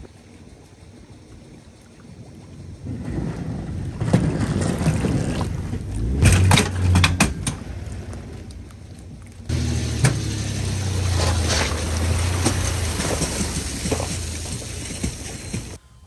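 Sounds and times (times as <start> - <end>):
water churning: 0.0 - 15.8
outboard motor running: 9.5 - 15.8.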